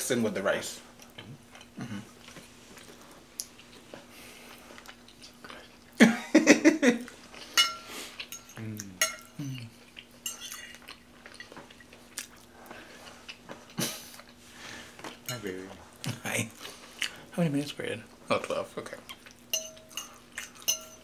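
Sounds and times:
cutlery scraping ceramic plates: 0:07.4 - 0:09.4, 0:10.2 - 0:10.8, 0:19.6 - 0:21.0.

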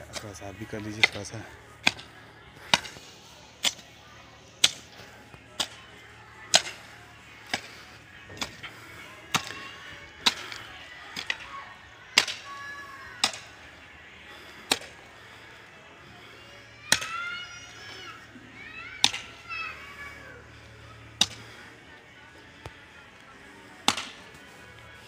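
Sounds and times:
hoe chopping into soil: 0:23.9 - 0:24.2.

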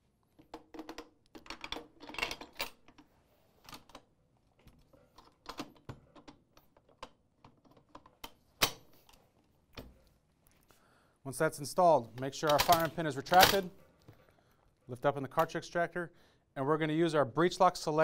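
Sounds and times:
metal parts clicking and rattling: 0:00.3 - 0:03.1.

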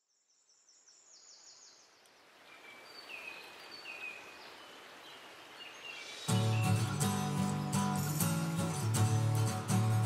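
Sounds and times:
birds singing: 0:00.1 - 0:08.8
soft even hiss: 0:01.2 - 0:09.0.

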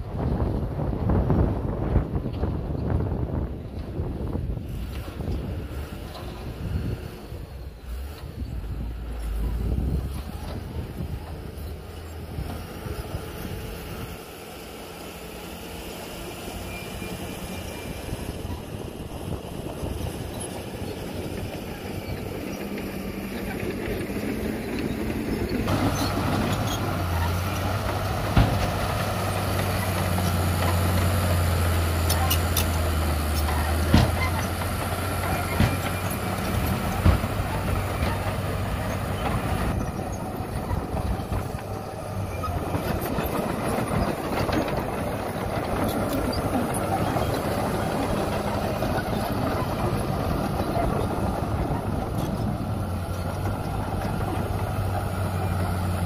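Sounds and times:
bulldozer engine droning: 0:00.0 - 0:56.0
dump truck tipping load: 0:00.4 - 0:56.0.

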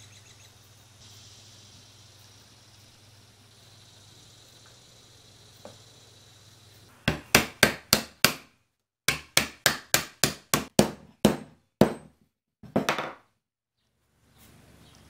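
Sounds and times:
hammer tapping wood: 0:07.1 - 0:08.5, 0:09.1 - 0:13.2.

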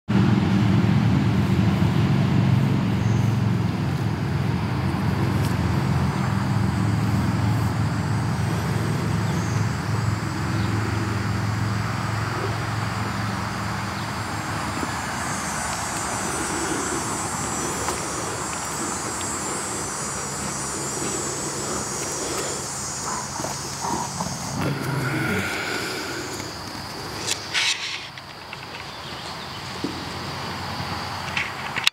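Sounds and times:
wolf growling: 0:08.2 - 0:28.2.

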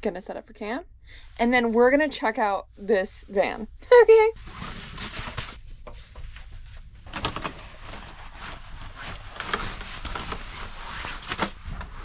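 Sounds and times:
things being handled and moved: 0:04.4 - 0:12.0.

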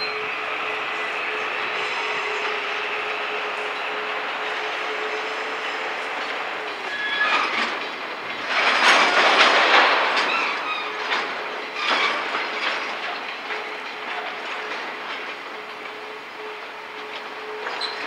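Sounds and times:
short high wheel squeals: 0:00.0 - 0:02.9, 0:06.8 - 0:07.7, 0:10.2 - 0:12.7, 0:17.5 - 0:18.0
train wheels clacking over joints: 0:00.0 - 0:18.0.

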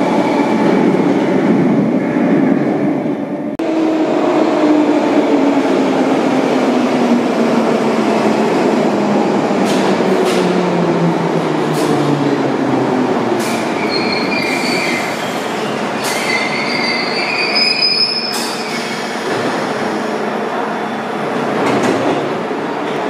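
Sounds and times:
wheel and brake squeals: 0:13.7 - 0:15.4, 0:16.0 - 0:19.0.

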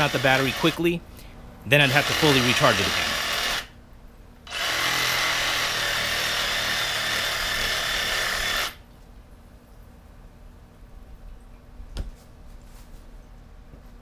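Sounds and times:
reciprocating saw cutting roots: 0:00.0 - 0:01.0, 0:01.8 - 0:03.7, 0:04.5 - 0:08.8.

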